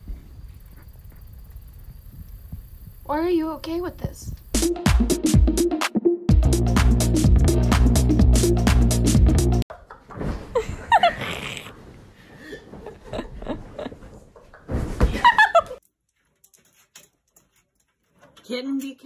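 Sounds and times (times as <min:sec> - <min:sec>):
thumps and bumps: 0:09.8 - 0:10.8, 0:12.7 - 0:15.7
person shrieking laughter: 0:10.6 - 0:11.7.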